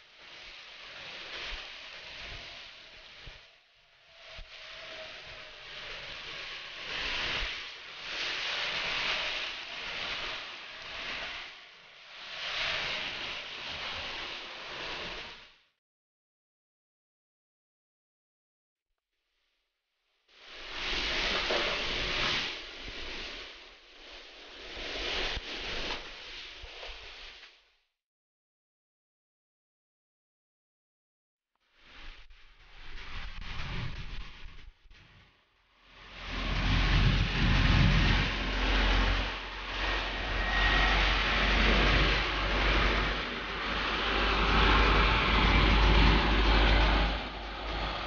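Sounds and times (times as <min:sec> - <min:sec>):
heavy rain and wind: 0:00.0 - 0:15.5, 0:20.4 - 0:27.4, 0:35.8 - 0:48.0
car driving through water: 0:36.2 - 0:48.0.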